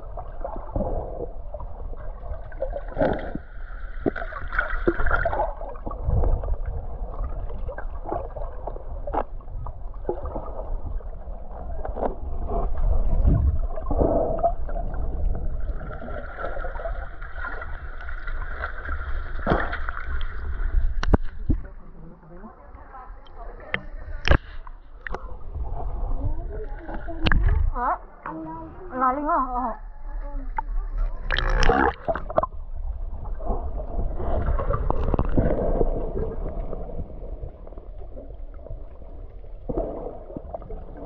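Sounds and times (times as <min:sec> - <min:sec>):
muffled underwater gurgling: 0:20.4 - 0:41.0.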